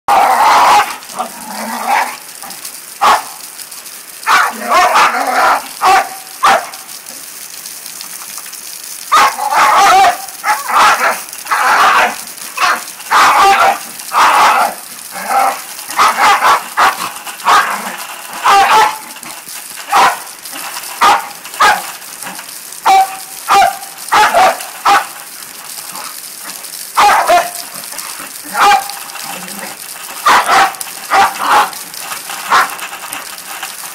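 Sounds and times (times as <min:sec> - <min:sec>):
dog barking and yapping: 0:00.1 - 0:02.2, 0:03.0 - 0:03.4, 0:04.2 - 0:06.8, 0:09.1 - 0:22.0, 0:22.8 - 0:25.2, 0:26.0 - 0:31.8, 0:32.4 - 0:32.9
rain falling: 0:00.1 - 0:33.9.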